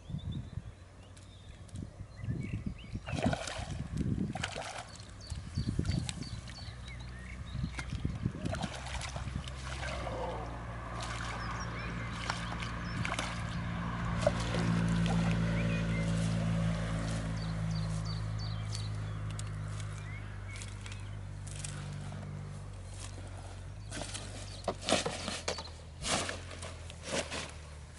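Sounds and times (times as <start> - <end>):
low engine hum: 0.0 - 27.9
fish splashing at water surface: 3.1 - 5.2, 7.7 - 17.2.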